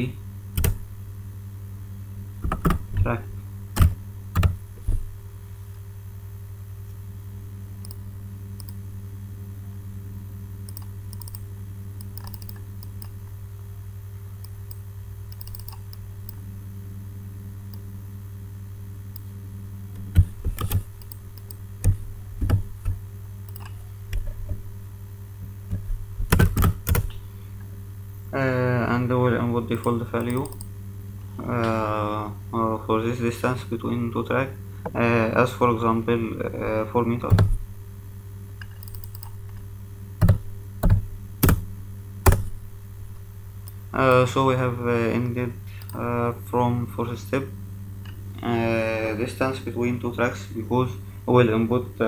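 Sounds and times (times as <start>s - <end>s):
keyboard typing: 0.6s - 0.8s, 3.8s - 4.6s, 10.7s - 11.4s, 12.0s - 13.2s, 14.7s - 16.0s, 20.0s - 23.8s, 26.3s - 27.1s, 29.8s - 30.7s, 38.6s - 39.4s.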